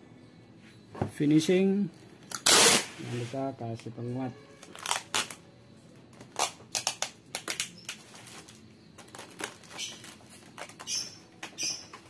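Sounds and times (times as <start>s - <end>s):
plastic wrapping crinkling: 4.6s - 5.4s, 6.1s - 12.0s.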